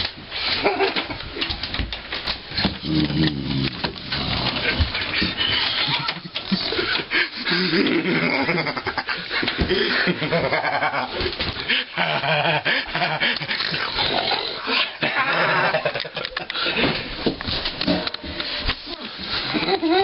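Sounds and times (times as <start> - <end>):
vocal noises: 2.6 - 8.8
man laughing loudly: 4.5 - 13.9, 14.7 - 16.9, 19.5 - 20.0.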